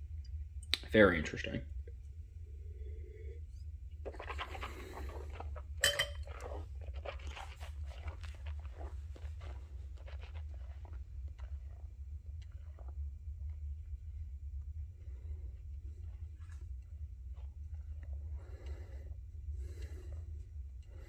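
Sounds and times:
steady low hum: 0:00.0 - 0:21.0
person slurping wine: 0:04.0 - 0:11.8
wet mouth sounds: 0:04.0 - 0:13.0.

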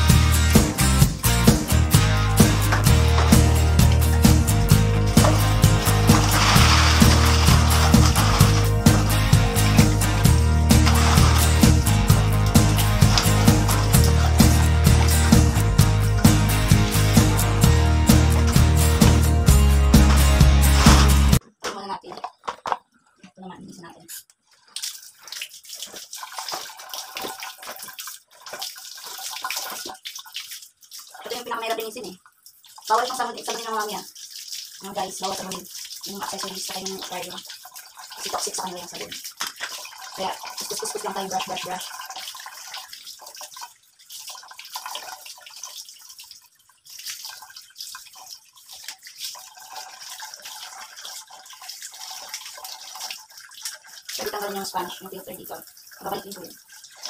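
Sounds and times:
water running in a basin: 0:00.0 - 0:57.0
water splashing and sloshing: 0:00.0 - 0:57.0
brush scrubbing: 0:03.0 - 0:19.2, 0:19.9 - 0:21.4.

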